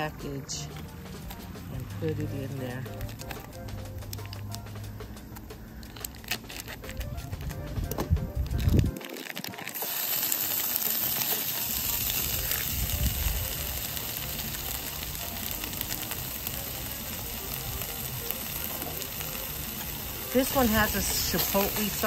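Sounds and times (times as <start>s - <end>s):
food sizzling in frying pan: 8.8s - 22.0s.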